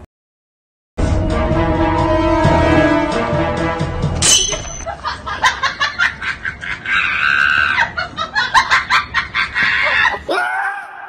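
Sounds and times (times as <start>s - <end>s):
person shrieking: 9.8s - 11.0s.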